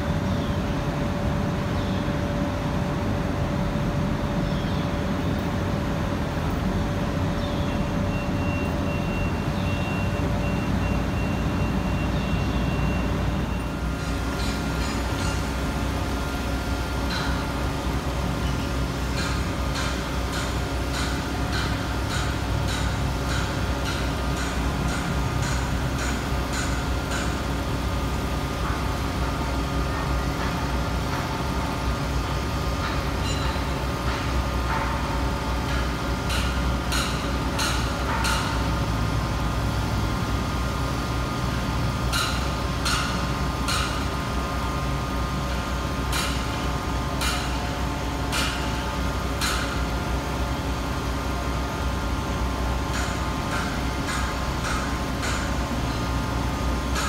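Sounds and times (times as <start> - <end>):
crane engine running: 0.0 - 57.0
sharp metal knocks: 13.9 - 15.6, 19.0 - 27.5, 32.8 - 38.6, 42.1 - 44.1, 46.1 - 46.6, 47.2 - 47.7, 48.3 - 48.8, 49.4 - 49.8, 52.9 - 56.1.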